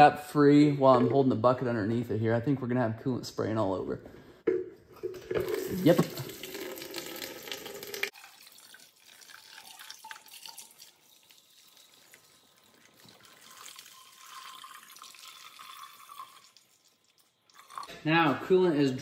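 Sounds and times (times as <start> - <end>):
coolant pouring into container: 4.9 - 18.0
faint liquid trickle: 5.5 - 18.0.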